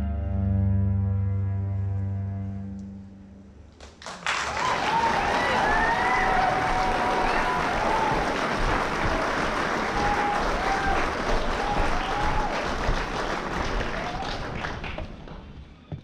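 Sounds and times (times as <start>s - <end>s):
audience applauding: 3.8s - 15.5s
cheers and whoops: 4.3s - 14.6s.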